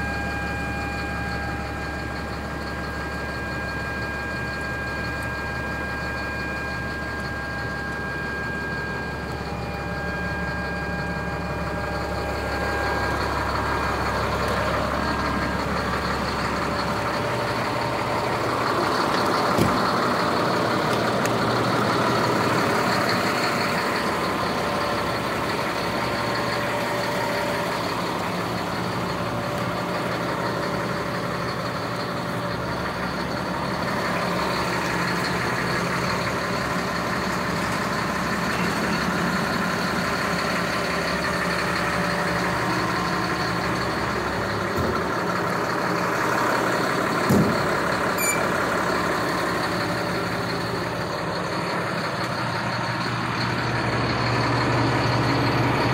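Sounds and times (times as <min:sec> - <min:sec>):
faint high whine: 0:00.0 - 0:18.4
diesel engine idling: 0:00.0 - 0:55.9.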